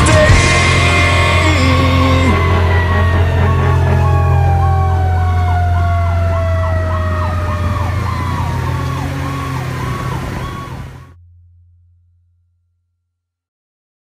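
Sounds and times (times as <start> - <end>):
low engine drone: 0.0 - 12.0
low siren tone sliding down: 0.6 - 11.2
siren yelping: 1.1 - 11.2.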